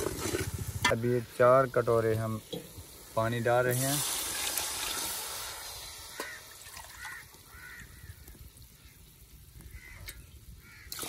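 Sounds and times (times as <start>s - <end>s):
water pouring from a steel jug: 3.2s - 7.4s.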